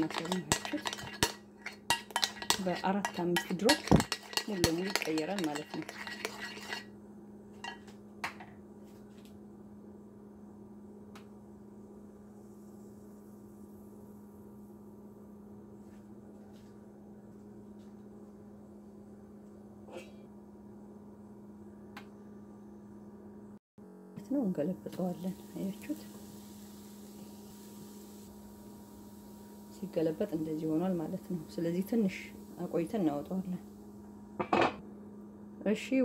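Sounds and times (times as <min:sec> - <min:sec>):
spoon clinking against bowl: 0:00.0 - 0:06.9
low electrical hum: 0:00.0 - 0:36.0.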